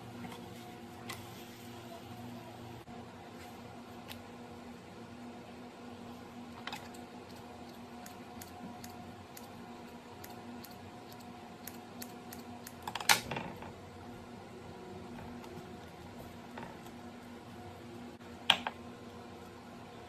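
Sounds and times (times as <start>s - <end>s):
faint steady hum: 0.0s - 20.0s
scissors snipping dough: 6.8s - 13.2s.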